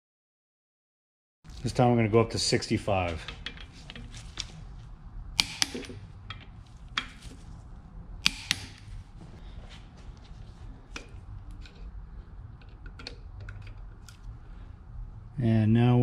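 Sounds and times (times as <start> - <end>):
tool handling: 3.0 - 4.6, 5.4 - 7.5, 10.2 - 12.0
torque wrench clicks: 5.4 - 6.0.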